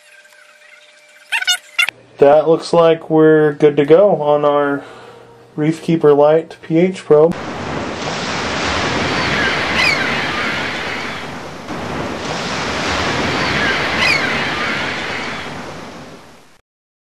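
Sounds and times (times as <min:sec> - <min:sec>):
ocean waves washing in: 0:07.4 - 0:16.6.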